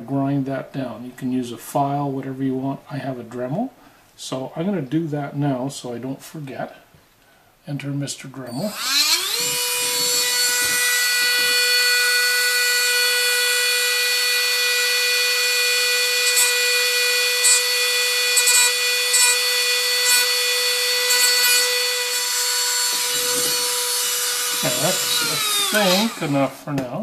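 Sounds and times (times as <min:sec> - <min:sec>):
rotary tool whining: 0:08.6 - 0:26.7.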